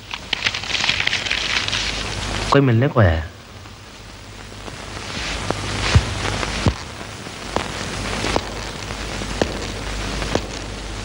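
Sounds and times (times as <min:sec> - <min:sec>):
steady hiss: 0:00.0 - 0:11.0
footsteps on hard floor: 0:05.1 - 0:06.8.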